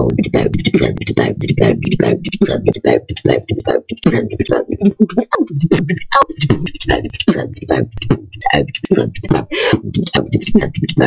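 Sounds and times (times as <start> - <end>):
woman beatboxing: 0.0 - 11.0.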